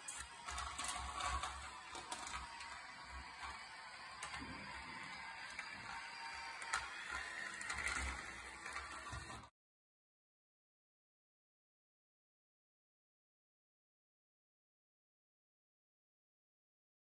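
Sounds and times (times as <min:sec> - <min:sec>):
toy train motor whirring: 0:00.0 - 0:09.5.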